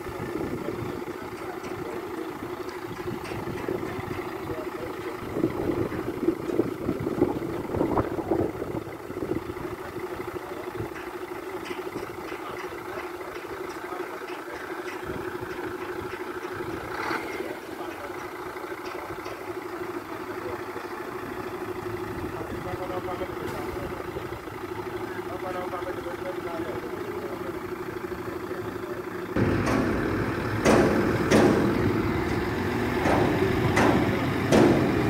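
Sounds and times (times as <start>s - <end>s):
diesel engine idling: 0.0s - 35.0s
uneven engine knocking: 0.2s - 35.0s.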